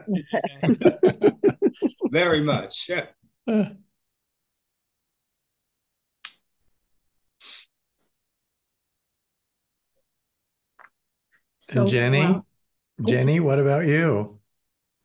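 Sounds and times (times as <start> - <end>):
person murmuring: 0.0 - 2.6.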